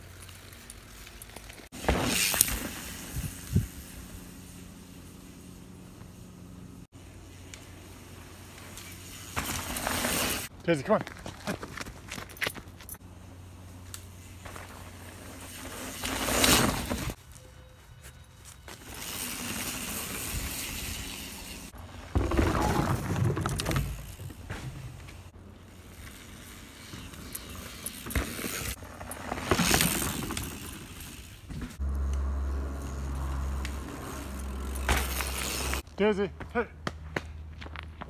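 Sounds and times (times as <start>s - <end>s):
mountain bike passing by: 0.0s - 12.3s, 12.9s - 35.8s
tyres rolling over wooden planks: 21.8s - 25.3s.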